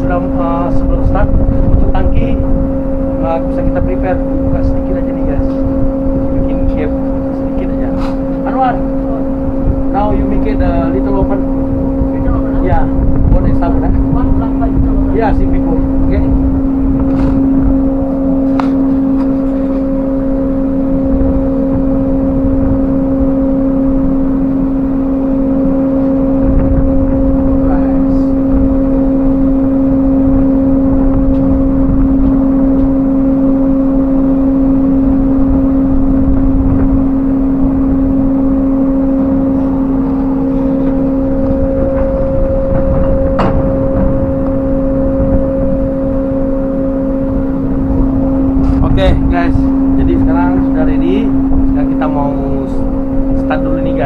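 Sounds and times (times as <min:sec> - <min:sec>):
deck machinery humming: 0:00.0 - 0:54.0.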